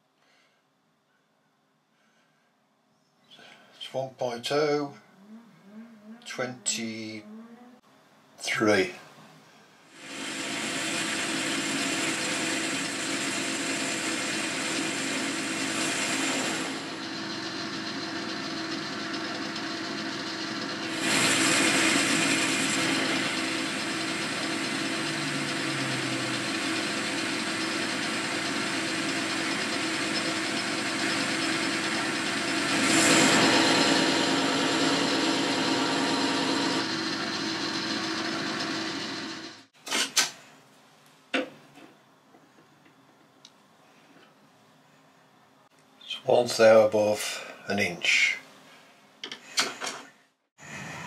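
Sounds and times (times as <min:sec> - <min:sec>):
metal lathe cutting: 0:10.0 - 0:39.7.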